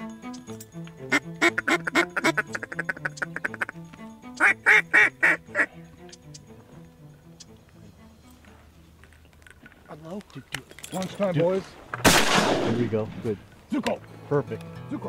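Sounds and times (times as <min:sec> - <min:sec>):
background music: 0:00.0 - 0:09.7, 0:12.1 - 0:15.0
duck quacking: 0:01.1 - 0:03.8, 0:04.4 - 0:05.7.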